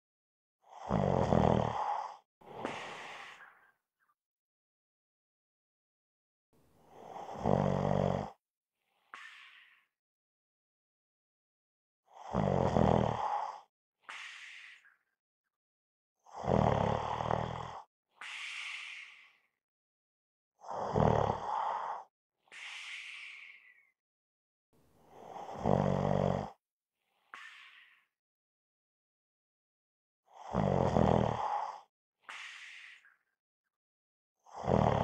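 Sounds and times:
person snoring: 0.7 - 3.7, 6.9 - 8.4, 12.1 - 14.8, 16.2 - 19.5, 20.6 - 23.8, 25.1 - 26.6, 30.3 - 33.0, 34.4 - 35.0
soft breathy exhale: 2.0 - 3.8, 9.0 - 9.9, 13.4 - 15.0, 18.2 - 19.5, 21.5 - 24.0, 27.2 - 28.1, 31.4 - 33.2.

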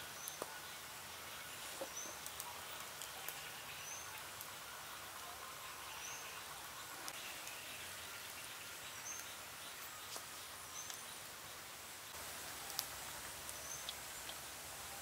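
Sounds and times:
background hiss: 0.0 - 15.0.

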